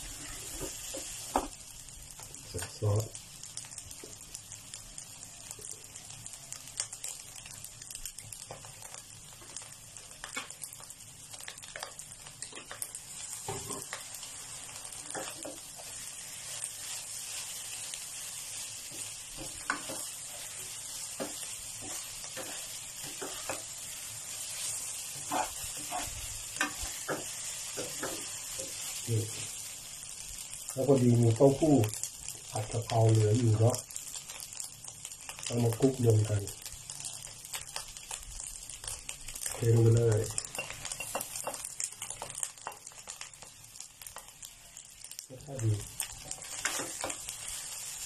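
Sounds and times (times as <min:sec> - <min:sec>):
fried rice sizzling in a pan: 0:00.0 - 0:48.0
spatula scraping and tapping pan: 0:11.4 - 0:14.2, 0:15.0 - 0:17.5, 0:18.6 - 0:29.0, 0:40.3 - 0:43.5, 0:46.0 - 0:47.7.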